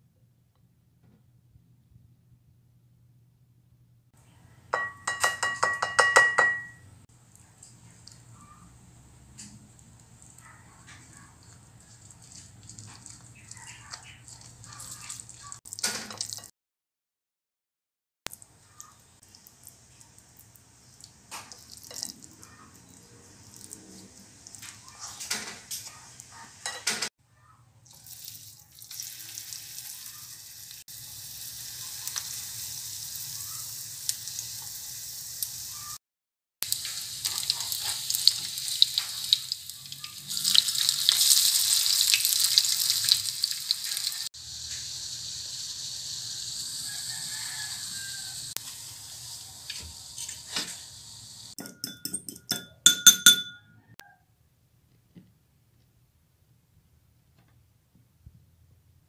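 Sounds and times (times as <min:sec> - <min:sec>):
batter frying with crackling pops: 0:09.2 - 0:16.5, 0:18.3 - 0:22.3, 0:27.9 - 0:36.0, 0:36.6 - 0:51.6.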